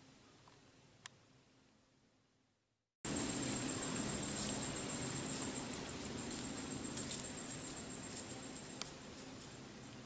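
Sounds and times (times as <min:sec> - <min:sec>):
insect trilling: 0:03.1 - 0:09.6.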